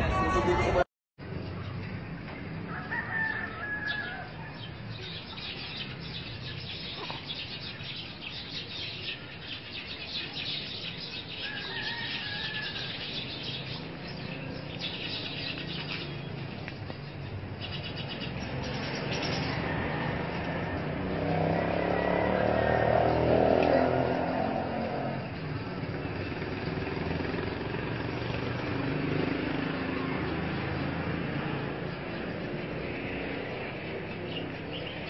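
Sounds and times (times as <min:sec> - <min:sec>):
birds chirping in trills: 0:02.7 - 0:19.8, 0:28.9 - 0:35.0.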